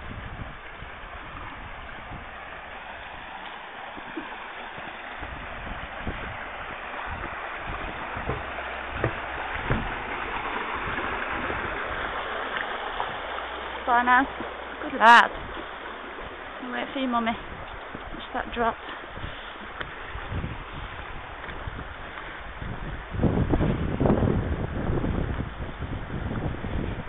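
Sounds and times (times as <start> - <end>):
water rushing over rocks: 0.0 - 27.0
soft low thumps: 4.8 - 10.6.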